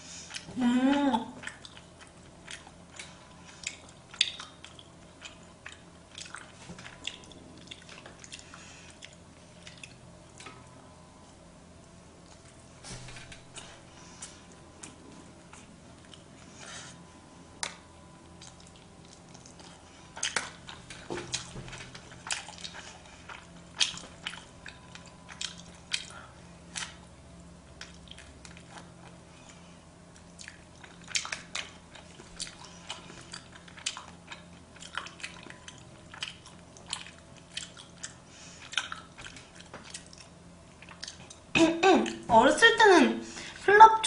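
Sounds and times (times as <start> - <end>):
person chewing wetly: 0.2 - 0.5, 1.2 - 12.7, 13.4 - 42.3.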